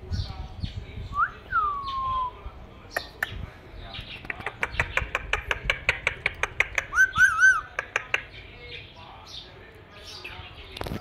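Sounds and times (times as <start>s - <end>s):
parakeet clicking chirps: 2.9s - 3.4s, 4.0s - 8.4s.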